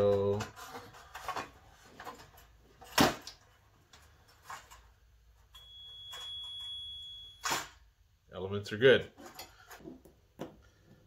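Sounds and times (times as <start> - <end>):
multimeter continuity beep: 5.6 - 7.5.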